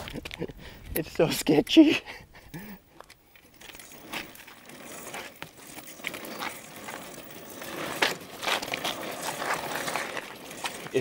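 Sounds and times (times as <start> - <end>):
tyre crunching over tarmac: 2.9 - 11.0.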